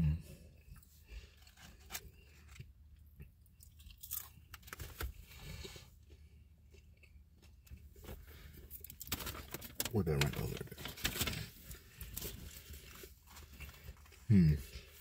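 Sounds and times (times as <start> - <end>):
crunchy chewing: 0.7 - 9.1.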